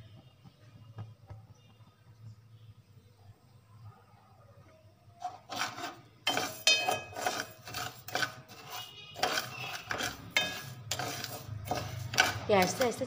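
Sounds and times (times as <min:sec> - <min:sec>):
ladle scraping sugar in metal pot: 0:05.2 - 0:13.0.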